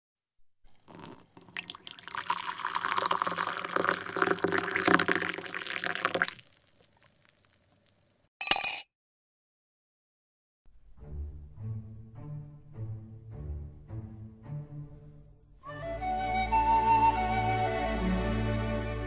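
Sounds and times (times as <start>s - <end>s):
coffee pouring into mug: 0.7s - 8.0s.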